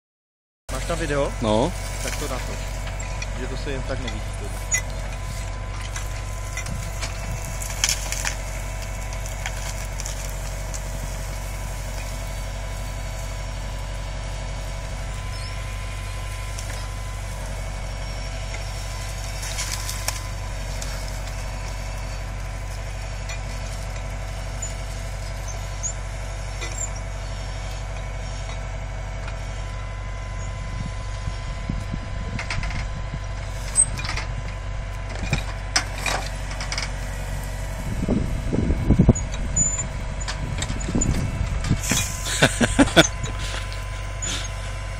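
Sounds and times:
tractor engine running: 0:00.7 - 0:44.9
wood cracking and clattering: 0:04.1 - 0:12.7, 0:19.0 - 0:21.4.

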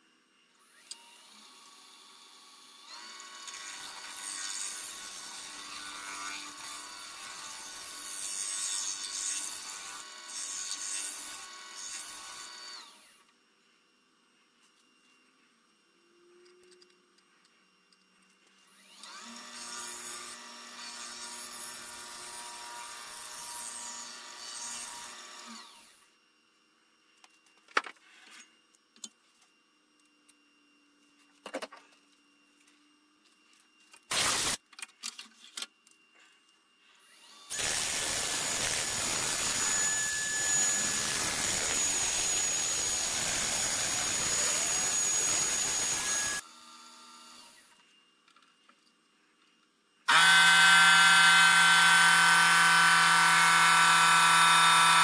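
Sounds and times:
power tool motor running: 0:34.1 - 0:34.6, 0:37.0 - 0:47.7, 0:50.1 - 0:55.0.

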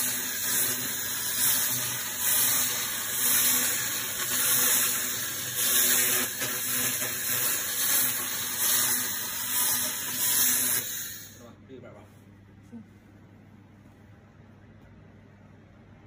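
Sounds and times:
laser hissing crackle: 0:00.0 - 0:11.4.

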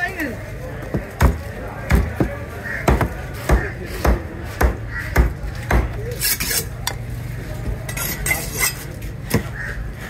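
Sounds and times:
knife scraping fish: 0:06.1 - 0:06.8, 0:07.9 - 0:09.0.

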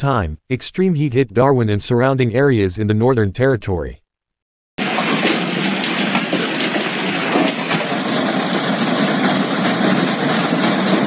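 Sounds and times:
heavy hail striking ground: 0:04.8 - 0:11.0.

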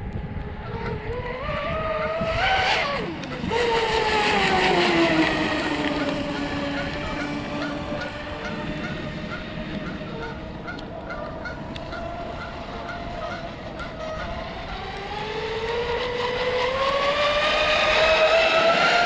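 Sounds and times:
model boat motor whine: 0:00.0 - 0:19.0.

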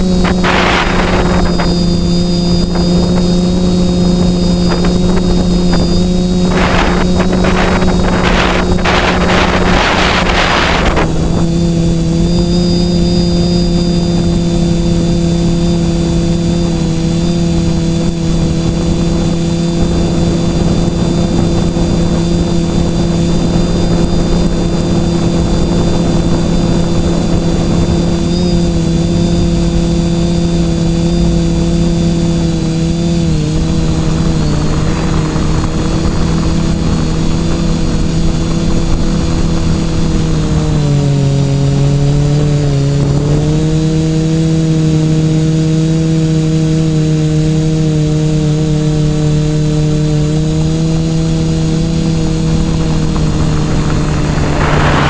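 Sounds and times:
quadcopter motors whining: 0:00.0 - 0:55.0.

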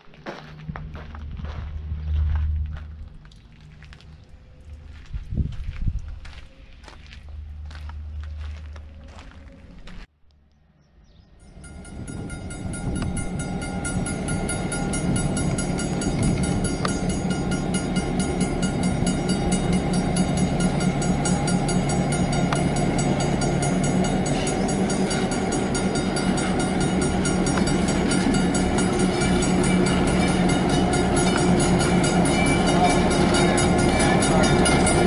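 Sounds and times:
diesel locomotive engine drone: 0:00.0 - 0:35.0
high whine: 0:11.4 - 0:35.0.

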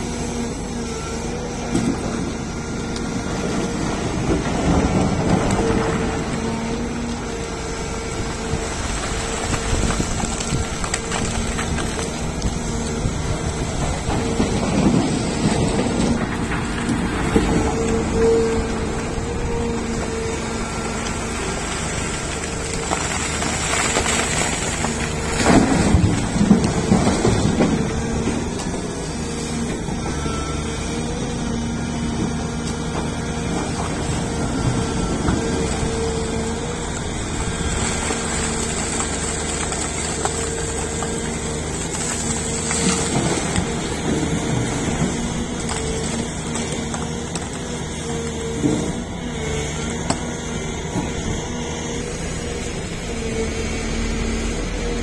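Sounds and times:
excavator engine droning: 0:00.0 - 0:55.0
bucket scraping through rock: 0:21.6 - 0:27.6.

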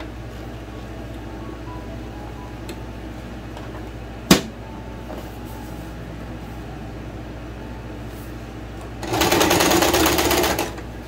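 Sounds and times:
low hum: 0:00.0 - 0:09.0.

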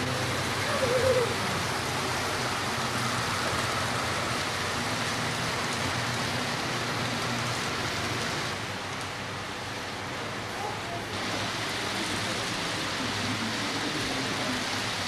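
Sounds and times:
faint voices murmuring: 0:00.0 - 0:02.6, 0:10.1 - 0:15.0
steady rushing hiss: 0:00.0 - 0:15.0.

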